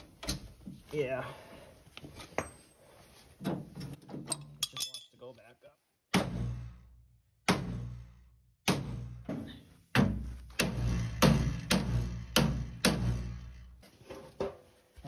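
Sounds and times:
hammer striking metal: 0:10.0 - 0:13.5.

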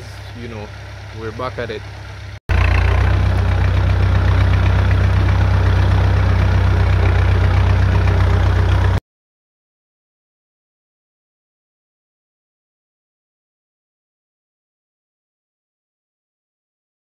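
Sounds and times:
tractor engine rumbling: 0:00.0 - 0:09.0.

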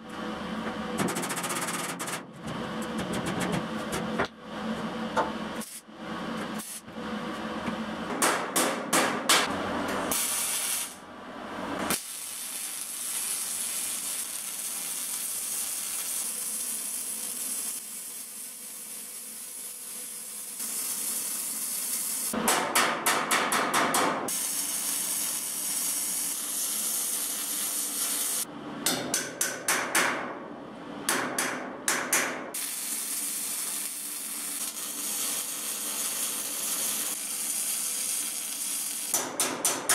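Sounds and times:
welding arc crackling and hissing: 0:06.6 - 0:06.9, 0:10.1 - 0:11.0, 0:11.9 - 0:22.4, 0:24.3 - 0:28.5, 0:32.6 - 0:39.2.

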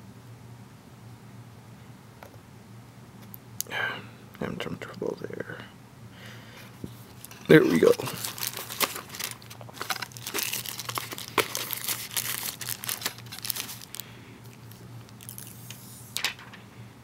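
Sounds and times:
packing paper crinkling: 0:06.8 - 0:16.7.

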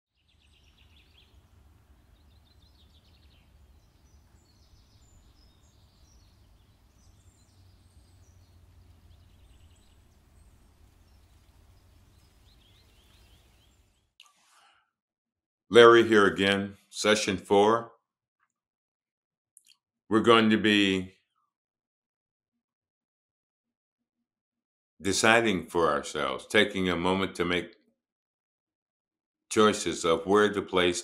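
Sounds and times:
faint birdsong: 0:00.1 - 0:14.8.

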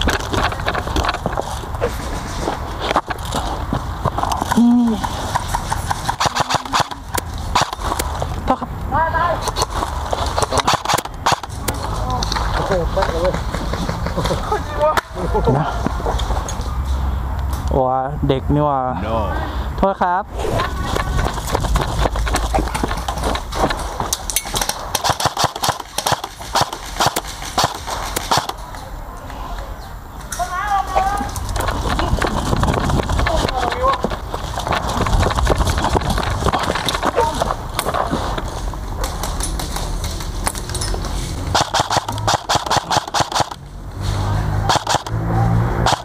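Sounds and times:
airsoft rifle shots: 0:05.3 - 0:08.1, 0:10.4 - 0:11.8, 0:24.5 - 0:28.6, 0:41.5 - 0:43.6, 0:44.6 - 0:45.2, 0:45.8 - 0:46.0
low rumble of movement: 0:20.3 - 0:25.0, 0:30.8 - 0:42.2.

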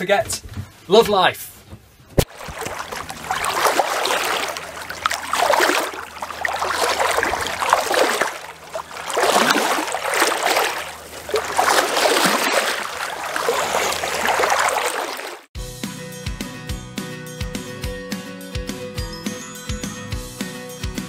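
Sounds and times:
water splashing along a hull: 0:02.2 - 0:15.5.

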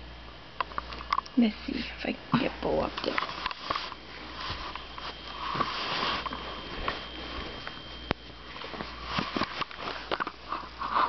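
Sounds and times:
rustling close to microphone: 0:02.6 - 0:11.0.

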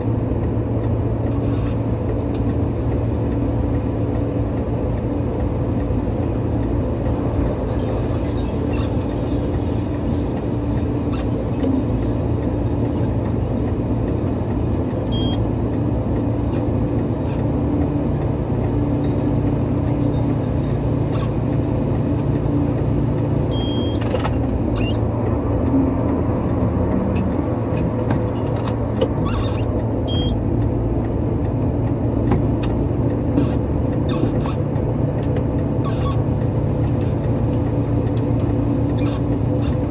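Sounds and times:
diesel engines running: 0:00.0 - 0:39.9.

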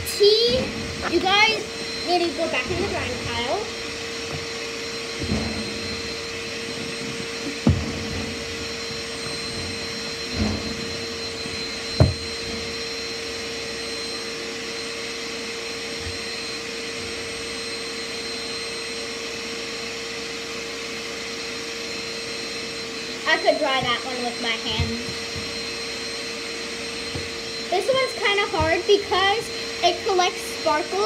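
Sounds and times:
vacuum cleaner running: 0:00.0 - 0:31.0
dull thumps: 0:01.9 - 0:12.8.

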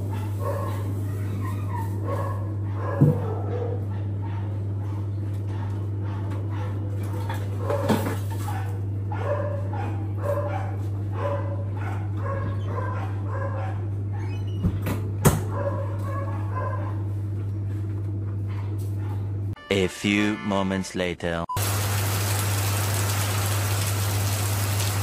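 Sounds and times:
dog barking: 0:00.0 - 0:14.2, 0:15.3 - 0:17.1, 0:18.5 - 0:19.3.

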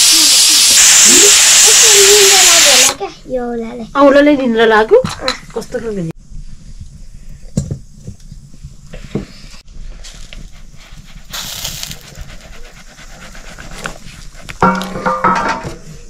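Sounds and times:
wood fire popping: 0:11.3 - 0:12.2.

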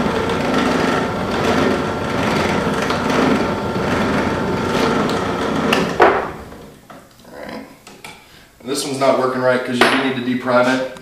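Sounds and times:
drill press motor whine: 0:00.0 - 0:06.8.

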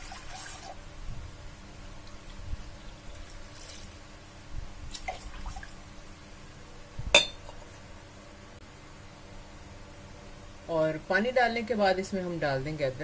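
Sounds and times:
sharp metallic clink: 0:07.2 - 0:07.4.

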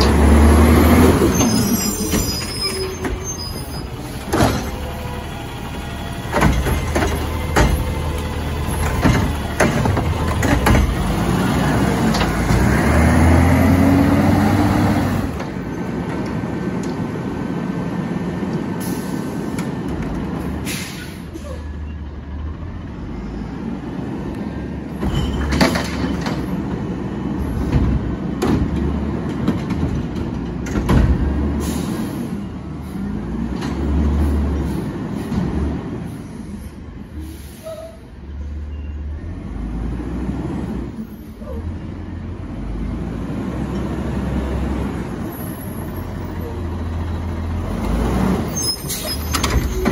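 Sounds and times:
diesel engine running: 0:00.0 - 0:25.0
metal clanks and bangs: 0:06.3 - 0:11.2, 0:24.9 - 0:26.8.

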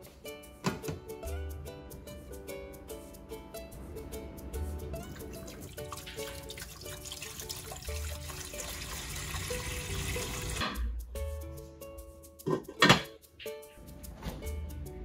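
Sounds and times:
water pouring into a pot: 0:05.2 - 0:10.6.

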